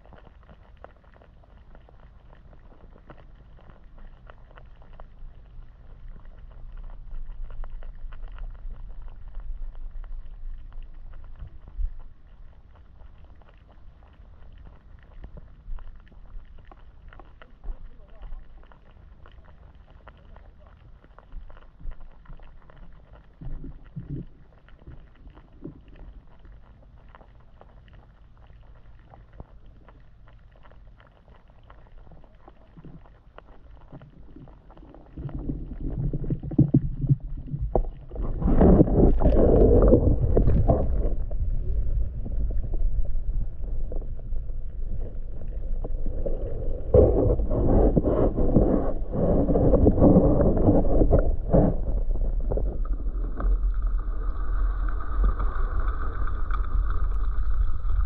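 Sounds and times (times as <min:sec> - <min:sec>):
faint ticks: 0:00.0 - 0:35.6
underwater rumble: 0:00.0 - 0:58.0
steady hum: 0:33.7 - 0:58.0.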